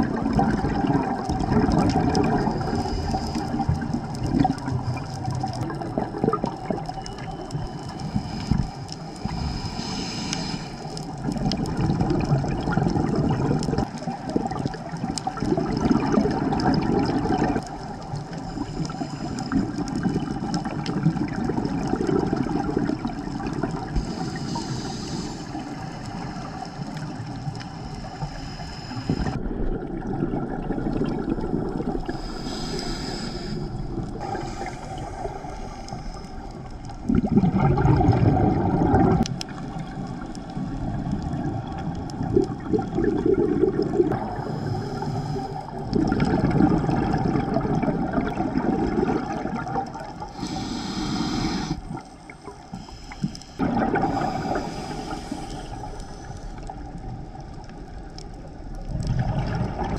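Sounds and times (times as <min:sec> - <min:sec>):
regulator bubbles exhaling: 0:00.0 - 0:59.9
regulator inhalation hiss: 0:07.7 - 0:11.0, 0:18.4 - 0:19.7, 0:23.9 - 0:29.4, 0:32.1 - 0:36.6, 0:44.2 - 0:45.8, 0:50.3 - 0:56.7.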